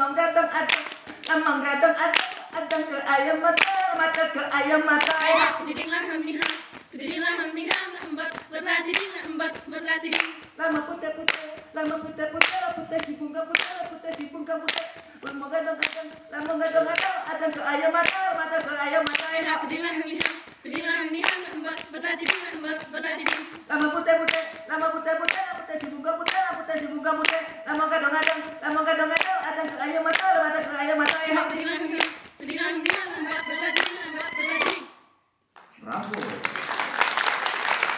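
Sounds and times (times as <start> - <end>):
group chanting in unison: 0.0 - 34.9
hands clapping: 0.7 - 1.4, 2.1 - 2.8, 3.6 - 4.3, 5.0 - 37.9.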